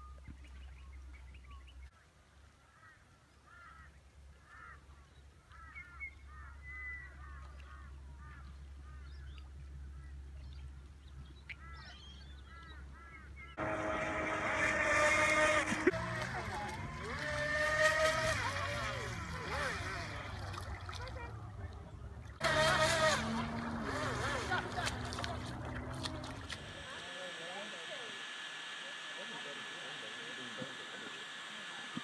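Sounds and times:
waterfowl honking: 12.6s - 20.2s
loud mechanical whine: 13.6s - 20.4s, 22.4s - 32.0s.

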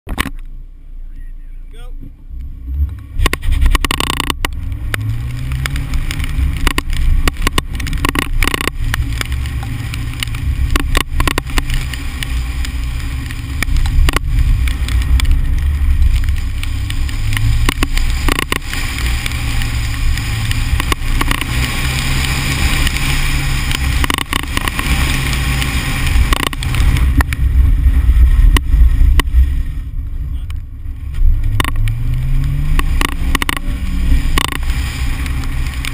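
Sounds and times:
car engine revving: 0.1s - 35.9s.

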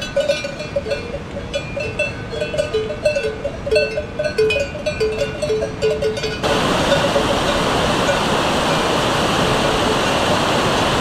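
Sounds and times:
cowbells clanking: 0.0s - 8.3s
stream rushing over rocks: 6.4s - 11.0s.

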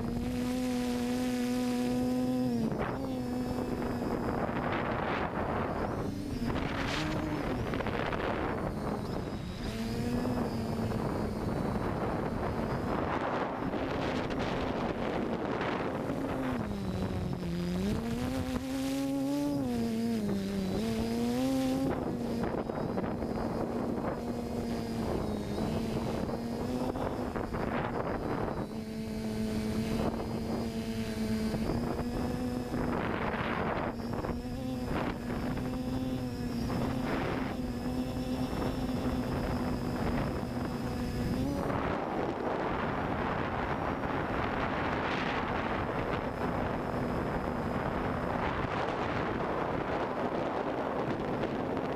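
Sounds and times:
drone motors whining: 0.0s - 51.9s
wind noise on microphone: 0.0s - 51.9s.

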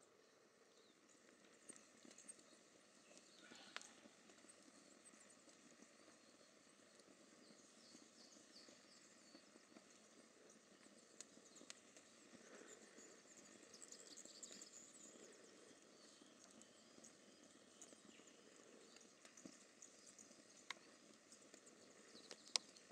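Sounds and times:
faint high bird chirps: 6.1s - 10.6s.

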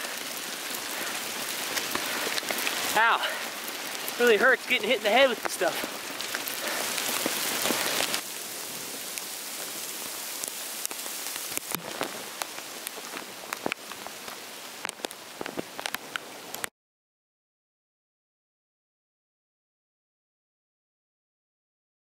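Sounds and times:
hailstones striking: 0.0s - 16.7s
hiss of falling rain: 0.0s - 16.7s.

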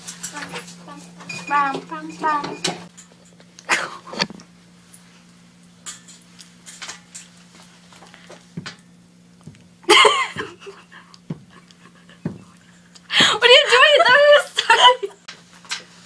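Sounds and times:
steady low hum: 0.0s - 16.0s
girls giggling: 9.9s - 12.3s, 13.4s - 15.2s.

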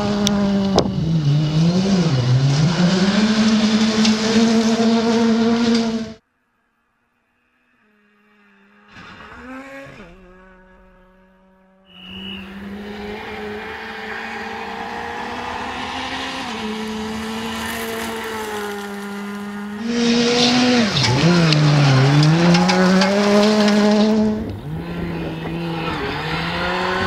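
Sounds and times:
rally car engine at high revs: 0.0s - 6.2s, 7.9s - 27.0s
tyre and gravel noise: 12.8s - 27.0s.

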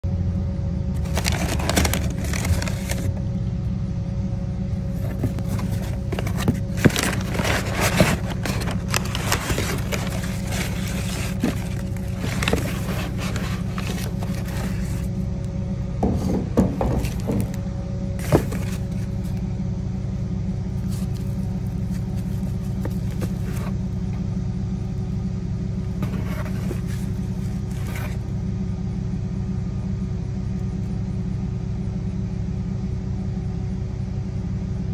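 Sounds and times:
steady low rumble: 0.0s - 34.9s
packing paper and cardboard rustling: 1.0s - 3.2s, 4.8s - 15.1s, 16.6s - 17.6s, 18.2s - 19.4s, 20.8s - 23.8s, 26.0s - 28.2s.

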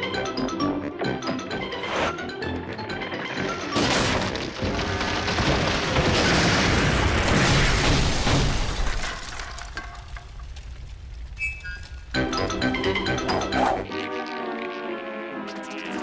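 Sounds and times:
tree crashing onto house: 3.8s - 11.4s.

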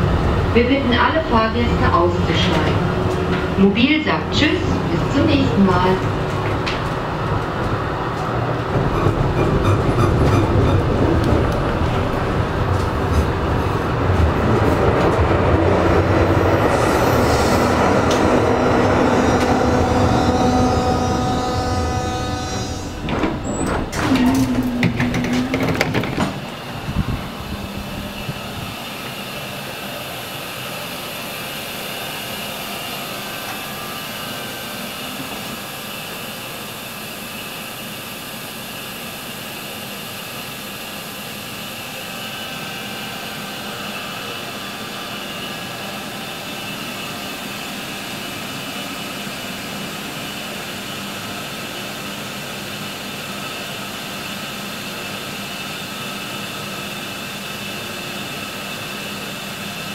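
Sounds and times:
tram equipment hum and hiss: 0.0s - 59.9s
tram door clicks and whirring: 2.3s - 3.8s, 6.0s - 15.3s, 19.3s - 27.9s.

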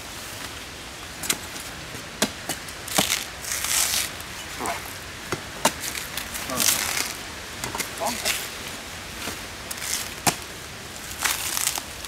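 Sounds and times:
palm fibre rustling and tearing: 1.2s - 12.0s
machete chopping into trunk: 2.2s - 3.2s.

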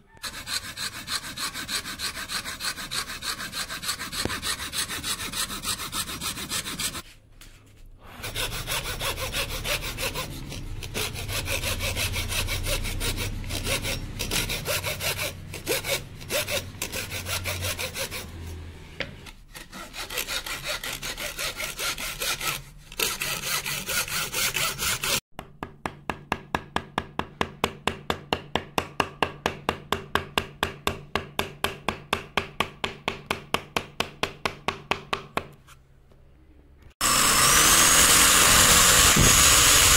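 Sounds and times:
hand saw rasping through wood: 0.2s - 7.0s, 8.1s - 18.6s, 19.2s - 25.2s, 37.0s - 39.9s.

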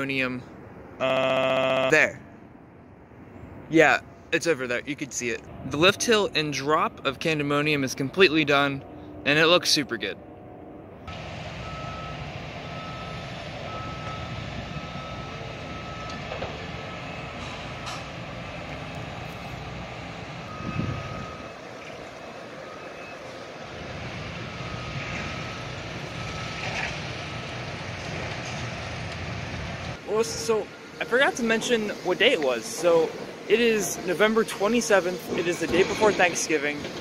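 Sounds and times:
heavy machinery rumble: 5.5s - 37.0s
reversing alarm beeping: 11.1s - 19.6s, 20.4s - 27.8s.

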